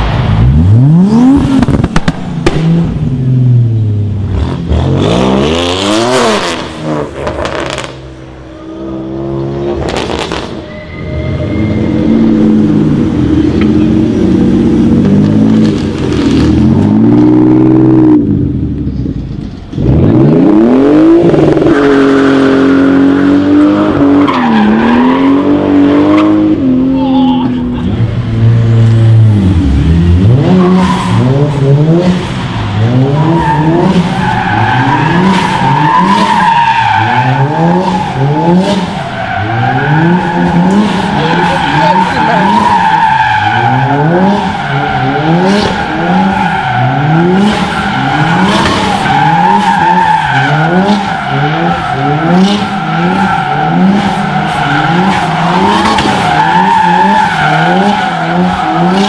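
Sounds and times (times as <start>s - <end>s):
engine revving: 0.0s - 3.6s, 4.2s - 8.3s, 19.7s - 26.9s, 27.8s - 36.4s, 37.0s - 42.8s, 43.4s - 59.0s
tyres squealing: 10.6s - 12.8s, 32.9s - 59.0s.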